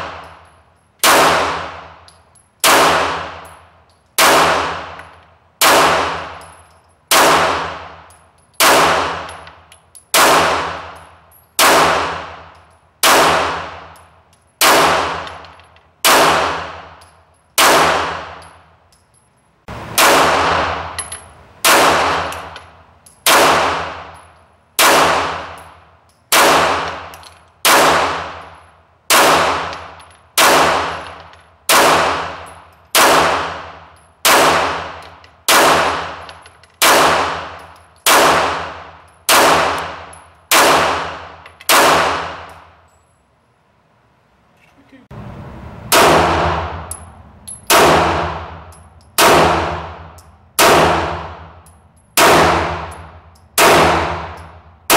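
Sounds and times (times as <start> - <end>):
pistol shots echoing indoors: 7.1 - 7.8, 8.6 - 9.5, 10.2 - 10.9, 20.0 - 21.0, 24.8 - 25.6, 26.3 - 27.0, 33.0 - 33.6, 36.8 - 39.9, 40.5 - 42.6, 47.7 - 51.5, 52.2 - 54.9.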